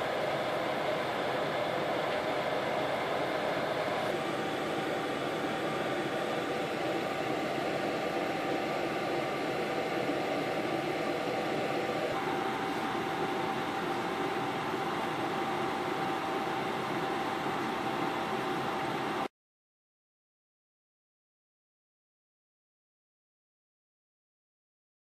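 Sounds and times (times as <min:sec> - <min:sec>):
fan noise: 0:00.0 - 0:19.3.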